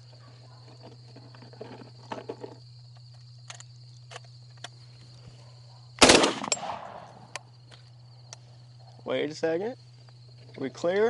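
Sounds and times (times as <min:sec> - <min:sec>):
insects trilling: 0:00.0 - 0:11.0
shotgun shot: 0:06.0 - 0:07.3.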